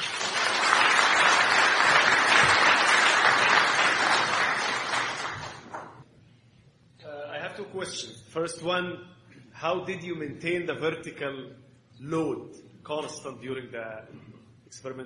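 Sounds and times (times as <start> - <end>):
audience applauding: 0.0 - 6.0.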